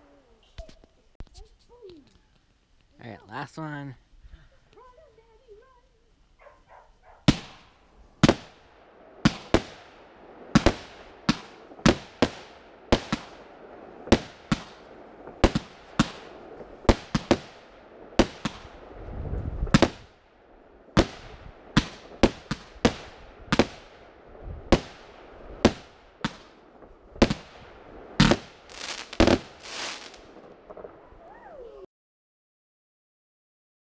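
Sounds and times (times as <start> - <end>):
fireworks bangs echoing: 6.4 - 20.2, 20.8 - 31.4.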